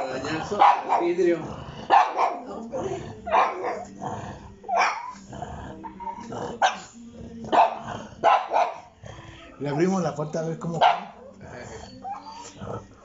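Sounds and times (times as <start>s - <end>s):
dog barking: 0.0s - 4.0s, 4.6s - 5.2s, 5.9s - 6.9s, 7.5s - 8.9s, 10.8s - 11.4s.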